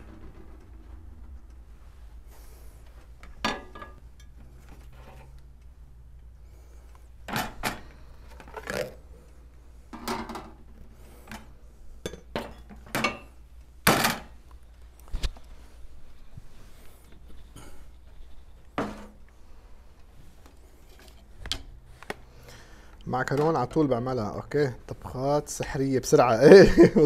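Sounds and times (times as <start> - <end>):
plates clattering on metal platter: 3.4 - 4.3.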